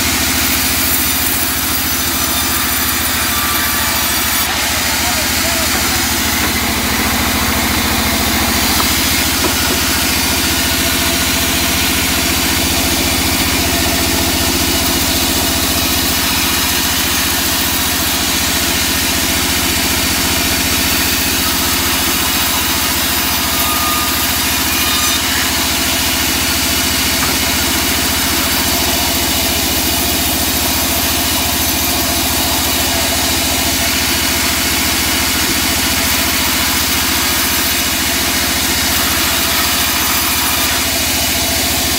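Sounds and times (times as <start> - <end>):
band saw humming: 0.0 - 41.9.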